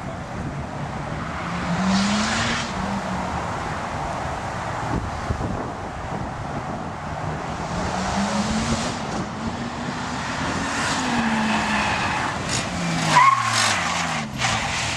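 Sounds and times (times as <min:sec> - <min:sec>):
car engine revving: 0:00.8 - 0:04.4, 0:07.2 - 0:14.9
tyre squeal: 0:11.0 - 0:14.9.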